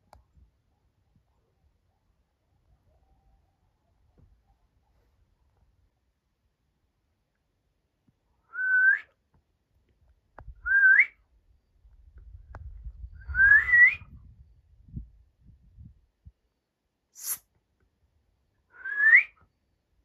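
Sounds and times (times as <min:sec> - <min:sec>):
person whistling rising whistles: 0:08.5 - 0:09.1, 0:10.7 - 0:11.2, 0:13.2 - 0:14.1, 0:18.8 - 0:19.4.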